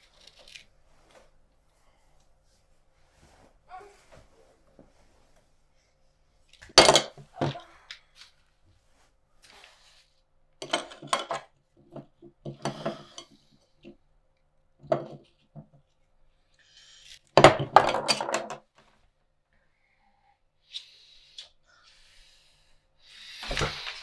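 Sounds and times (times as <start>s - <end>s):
cutlery clinking and clattering: 10.6s - 11.5s.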